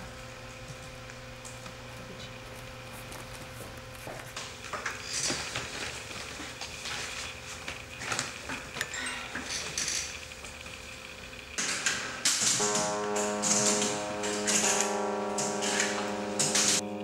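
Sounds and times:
faint hum: 12.6 - 17.0
music with held notes: 12.6 - 17.0.

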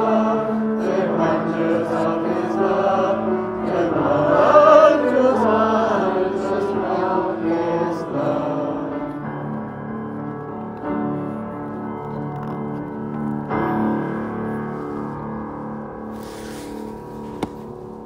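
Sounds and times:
choir singing: 0.0 - 9.3.

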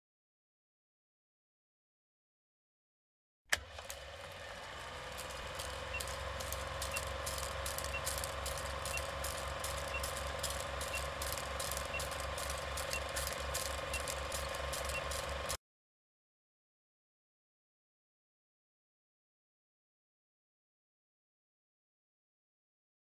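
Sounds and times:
film projector running: 3.5 - 15.6.

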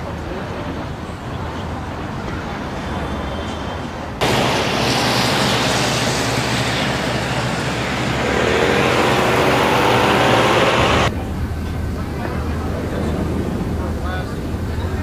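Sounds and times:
street traffic noise: 0.0 - 15.0
vehicle engine passing close: 4.2 - 11.1.

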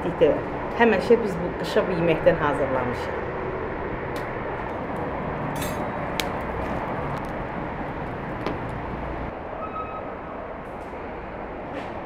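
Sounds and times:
wood fire burning: 3.4 - 9.3
fire crackles: 4.1 - 9.3.

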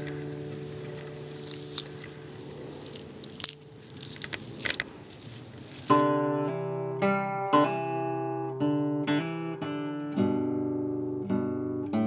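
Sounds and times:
fingerpicked acoustic guitar: 0.0 - 2.8, 5.9 - 12.0.

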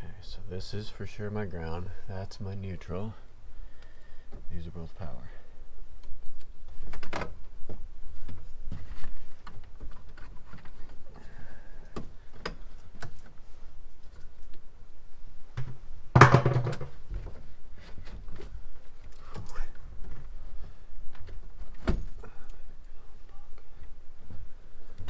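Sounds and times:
loud thump: 15.6 - 17.0.

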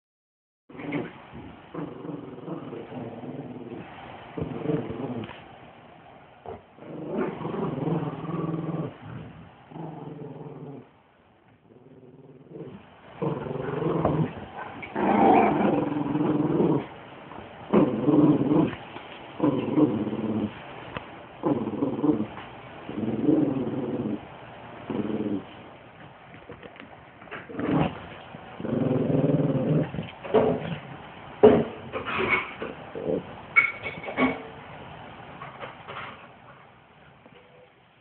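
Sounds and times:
dog growling: 0.7 - 5.4, 6.5 - 10.9, 11.6 - 17.0, 17.7 - 18.8, 19.4 - 20.6, 21.4 - 25.6, 27.4 - 28.0, 28.6 - 30.9, 31.5 - 33.4.

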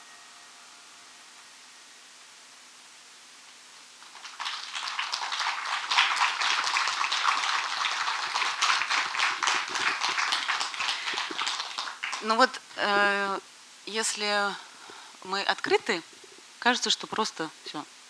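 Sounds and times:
audience applause: 4.0 - 13.1.

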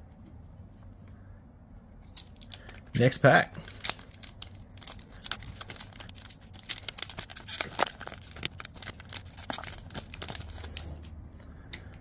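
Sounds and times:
foil wrapper crinkling and tearing: 2.1 - 11.1.

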